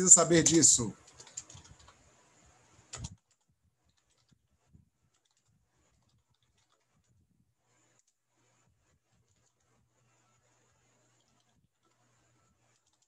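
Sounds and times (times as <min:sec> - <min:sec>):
keyboard keystroke clicks: 0:01.0 - 0:02.0, 0:02.9 - 0:04.4.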